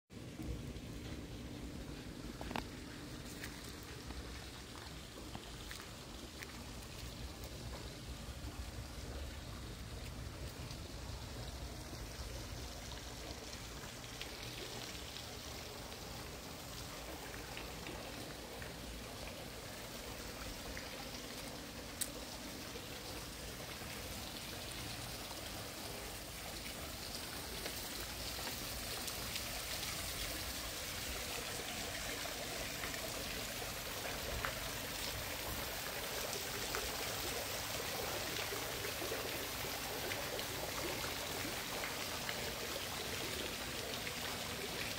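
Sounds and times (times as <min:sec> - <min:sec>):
pool water splashing: 0:00.2 - 0:44.9.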